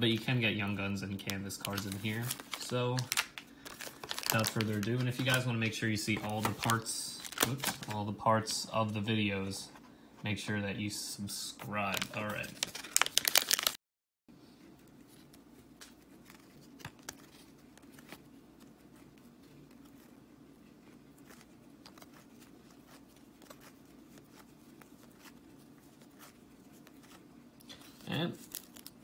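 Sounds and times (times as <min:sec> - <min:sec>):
low room hum: 0:00.0 - 0:29.0
cards being flipped: 0:15.2 - 0:20.2, 0:21.2 - 0:29.0.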